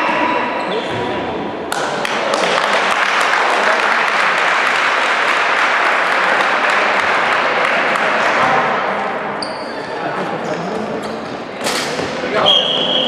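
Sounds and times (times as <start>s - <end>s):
crowd applauding: 1.8s - 8.5s.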